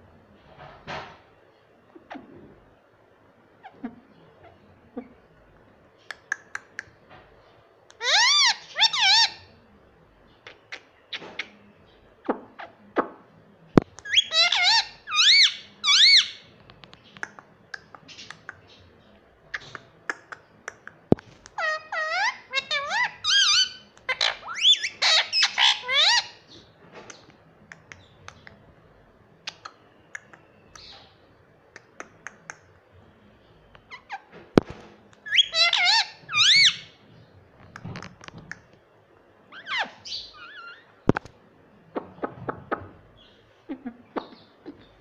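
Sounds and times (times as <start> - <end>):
parakeet calling: 7.9 - 9.5, 14.0 - 16.5, 21.5 - 26.6, 35.2 - 37.0, 39.5 - 41.2.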